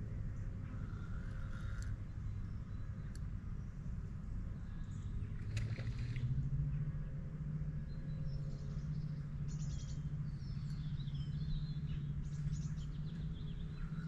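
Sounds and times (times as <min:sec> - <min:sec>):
rapid rattling bird trills: 0:00.0 - 0:03.1, 0:07.7 - 0:14.0
small birds chirping: 0:07.8 - 0:14.0.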